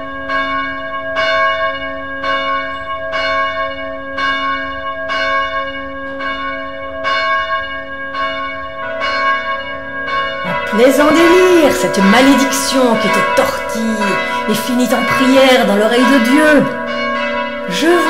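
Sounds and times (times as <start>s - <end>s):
bell tolling: 0.0s - 18.0s.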